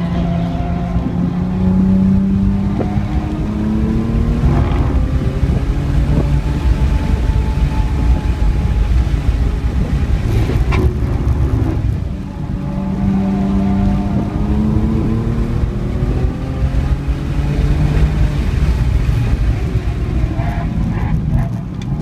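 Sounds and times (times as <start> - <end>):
car engine accelerating: 0.0 - 22.0
road and tyre rumble: 0.0 - 22.0.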